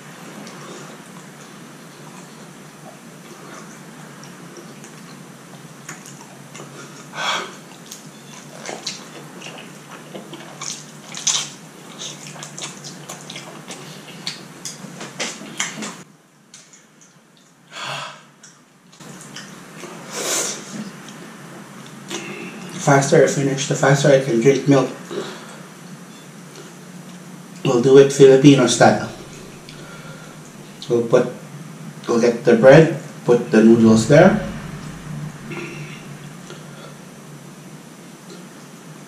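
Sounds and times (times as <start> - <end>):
steady hiss: 27.7 - 38.0.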